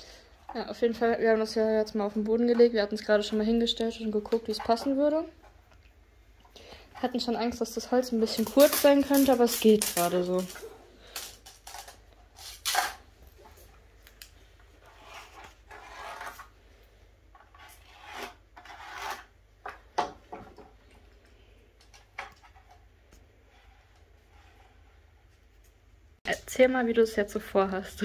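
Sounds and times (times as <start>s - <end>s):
pencil scratching on wood: 14.8s - 16.5s, 17.4s - 19.3s.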